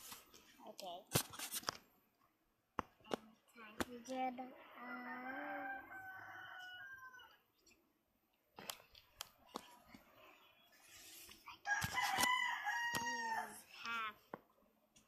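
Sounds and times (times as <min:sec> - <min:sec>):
rooster crowing: 0:04.8 - 0:07.4, 0:11.7 - 0:13.6.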